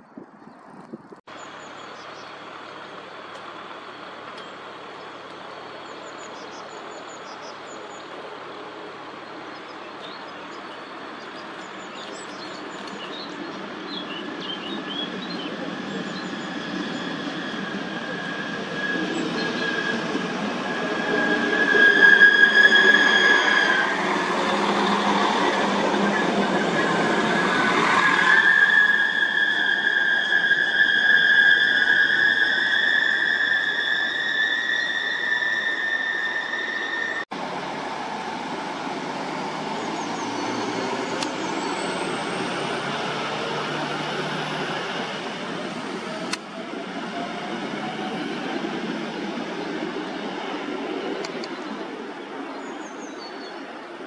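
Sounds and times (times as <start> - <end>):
diesel railcar approaching: 1.3 - 54.0
high brake squeal: 15.7 - 37.3.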